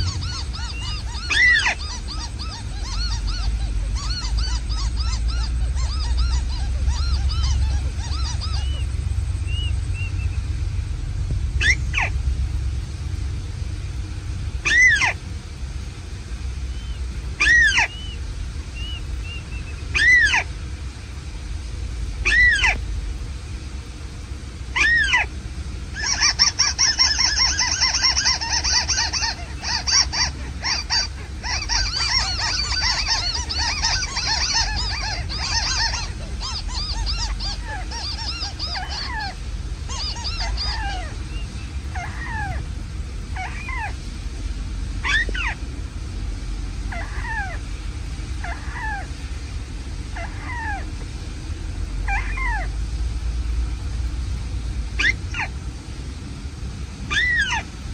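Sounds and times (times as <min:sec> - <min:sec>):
bird chattering with high trills: 0:00.0 - 0:10.5, 0:11.5 - 0:12.3, 0:14.6 - 0:15.2, 0:16.6 - 0:20.5, 0:22.2 - 0:22.8, 0:24.7 - 0:25.3, 0:25.9 - 0:44.0, 0:45.0 - 0:45.6
descending bird calls: 0:00.0 - 0:21.2, 0:21.8 - 0:23.9, 0:24.6 - 0:53.9, 0:54.8 - 0:55.6, 0:57.0 - 0:57.8.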